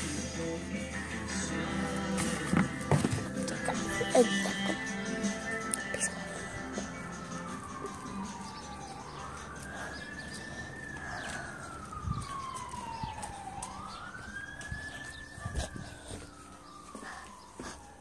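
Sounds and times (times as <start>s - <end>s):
siren wailing: 1.0s - 18.0s.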